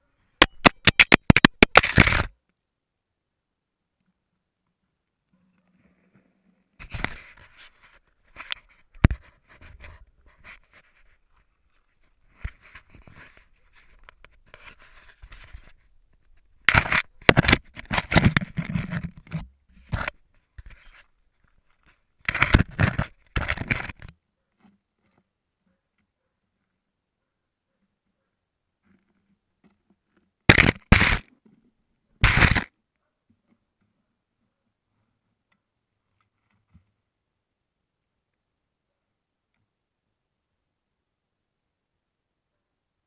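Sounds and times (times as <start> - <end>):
fingers handling camera: 0.4 - 2.3, 6.8 - 11.2, 12.4 - 21.0, 21.7 - 24.1, 30.5 - 31.3, 32.2 - 32.7.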